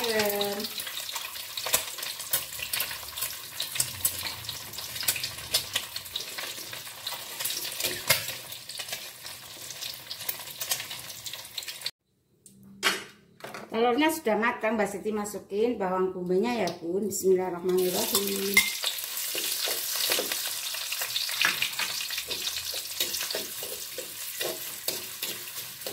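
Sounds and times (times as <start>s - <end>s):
egg sizzling in oil: 0.0s - 12.0s, 17.8s - 25.9s.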